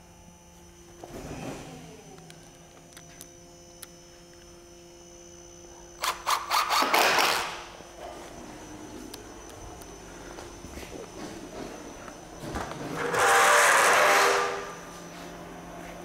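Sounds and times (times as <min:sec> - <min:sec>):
drill driving a screw: 0:06.0 - 0:07.6.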